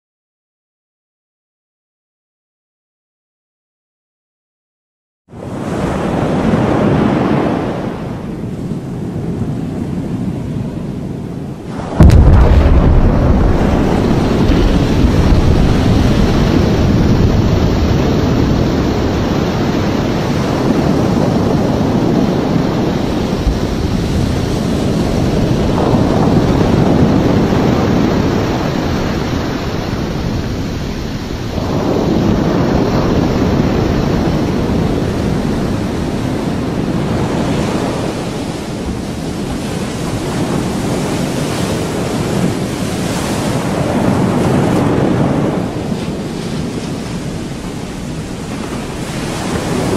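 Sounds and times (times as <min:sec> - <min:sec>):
deep roaring rumble: 0:11.6 - 0:36.4.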